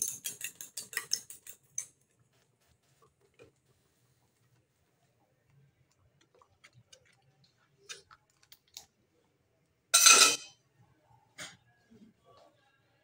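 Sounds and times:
ladle clinking against wok: 10.0s - 10.5s.

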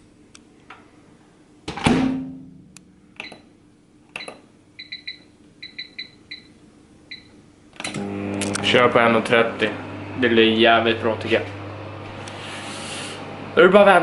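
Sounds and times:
short electronic beeps: 4.2s - 6.5s.

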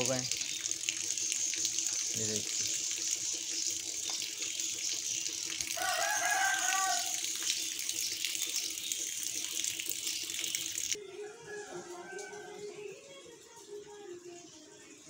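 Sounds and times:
light rain hissing: 0.0s - 3.0s, 5.4s - 7.6s
rooster crowing: 5.8s - 7.2s, 11.0s - 12.9s.

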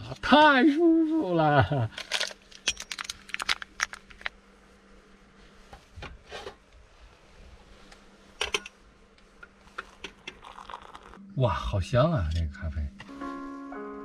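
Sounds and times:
faint steady hum: 0.0s - 14.0s
packet being torn open: 2.1s - 4.3s.

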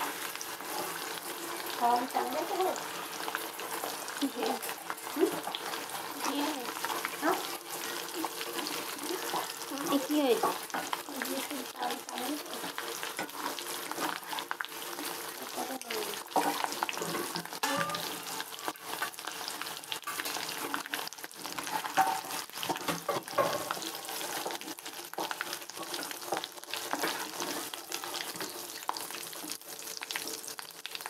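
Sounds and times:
potatoes sizzling in hot oil: 0.0s - 31.0s
metal skimmer scraping pan: 16.3s - 20.5s.

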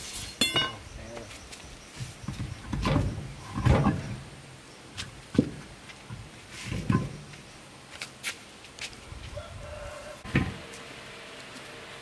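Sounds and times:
truck tyre scraping and shuffling: 5.0s - 9.7s.

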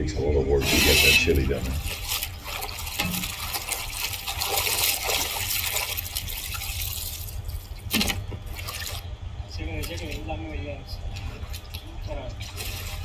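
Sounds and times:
water sloshing and splashing: 0.0s - 13.0s
hands swishing in water: 0.6s - 7.2s.

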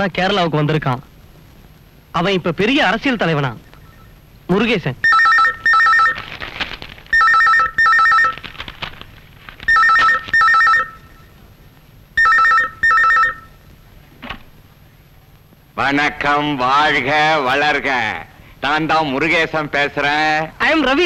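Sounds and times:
telephone ringing two-tone trill: 5.0s - 6.2s, 7.1s - 8.4s, 9.7s - 11.3s, 12.2s - 13.6s.

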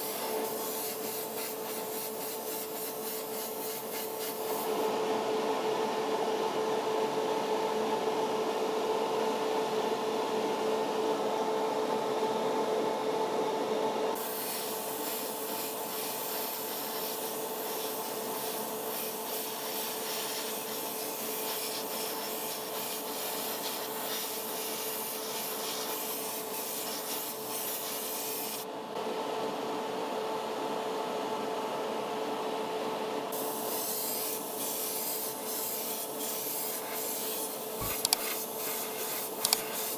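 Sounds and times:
airbrush spraying hiss: 0.0s - 4.8s, 14.2s - 28.6s, 33.4s - 39.9s
motor hum: 37.6s - 39.9s.

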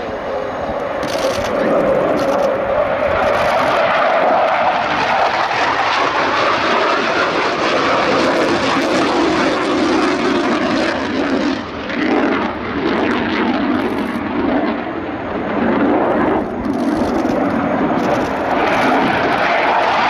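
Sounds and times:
jet taking off: 0.0s - 20.0s.

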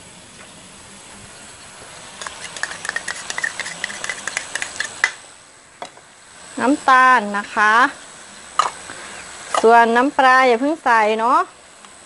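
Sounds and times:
crackling pops: 2.2s - 5.2s.

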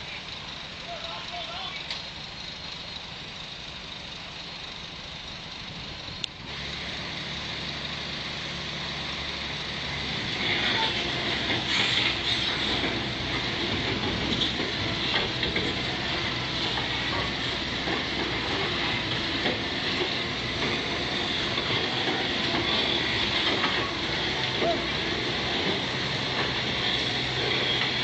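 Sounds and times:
crawler machine engine running: 0.0s - 28.0s
steel tracks clanking and grinding: 6.5s - 28.0s.

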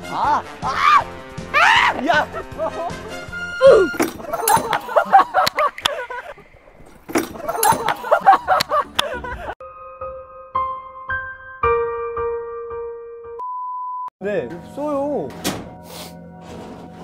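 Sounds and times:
background music: 0.0s - 6.0s, 7.2s - 13.4s, 14.2s - 17.0s
group of people shouting excitedly: 0.1s - 2.4s
people laughing: 1.6s - 3.3s, 3.9s - 6.5s, 7.2s - 9.6s
soft piano music: 9.6s - 13.5s.

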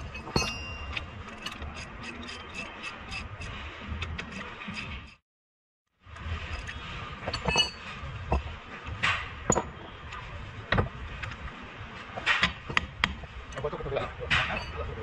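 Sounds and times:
metal tools clinking and knocking: 0.0s - 3.2s, 7.3s - 7.9s, 14.5s - 14.9s.

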